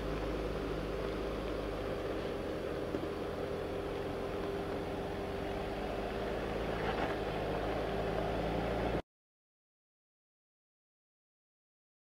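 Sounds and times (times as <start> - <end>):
suv engine rumble at low speed: 0.0 - 9.0.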